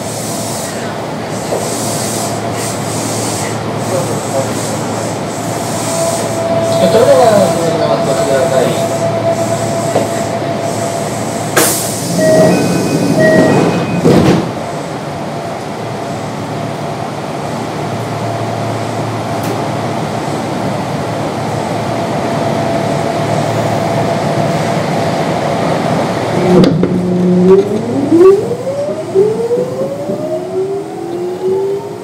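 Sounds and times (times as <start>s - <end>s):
electric train running: 1.3s - 14.4s
alternating ringing tones: 5.9s - 11.5s.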